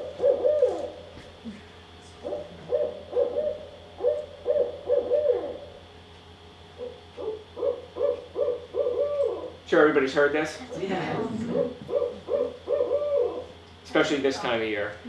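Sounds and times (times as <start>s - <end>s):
owl hooting over loudspeaker: 0.0s - 1.1s, 2.2s - 5.9s, 6.7s - 9.9s, 11.2s - 13.6s.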